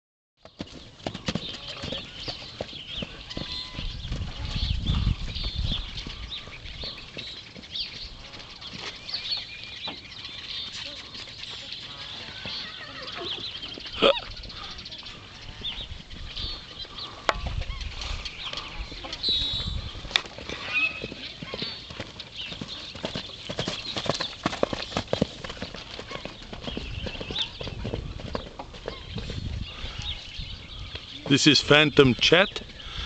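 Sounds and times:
hoofbeats on turf: 0:00.4 - 0:13.8, 0:16.9 - 0:29.8
birds chirping: 0:00.4 - 0:33.0.

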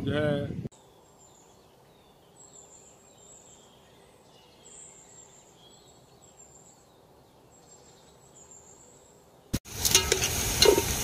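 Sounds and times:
birds twittering: 0:00.7 - 0:09.6
small birds chirping: 0:00.7 - 0:09.6.

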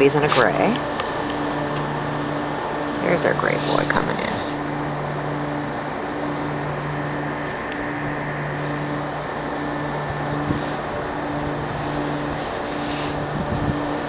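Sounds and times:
machinery humming: 0:00.0 - 0:14.0.

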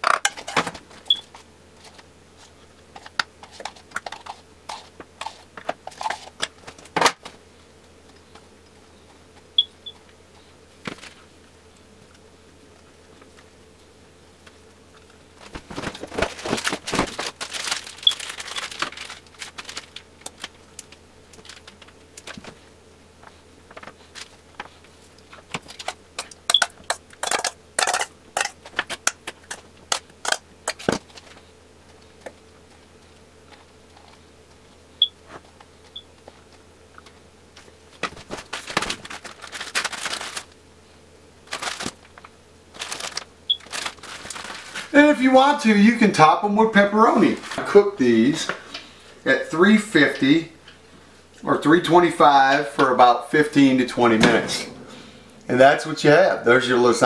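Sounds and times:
faint steady hum: 0:00.0 - 0:57.0
crinkling of wrappers: 0:15.4 - 0:22.6, 0:38.0 - 0:40.6, 0:41.4 - 0:45.0.

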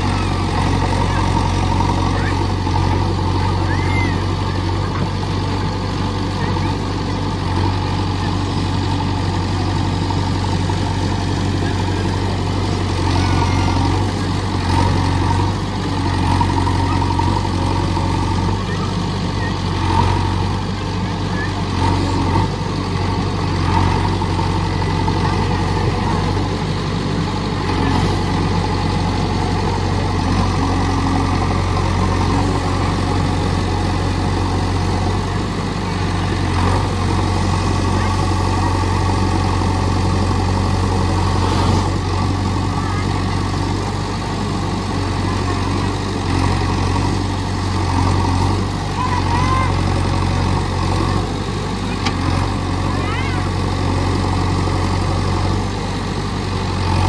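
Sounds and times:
diesel engine droning: 0:00.0 - 0:57.0.

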